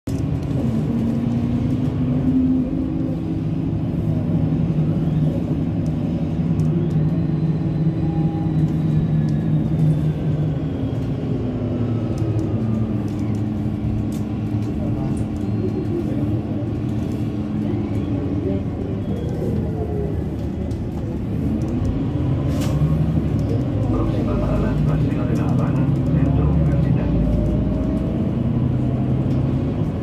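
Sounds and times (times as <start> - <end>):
bus engine droning: 0.1 - 30.0.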